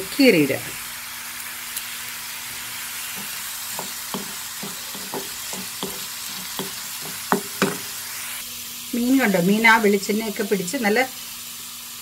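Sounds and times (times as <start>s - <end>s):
food sizzling in hot oil: 0.0s - 12.0s
spatula scraping a pan: 2.5s - 8.1s.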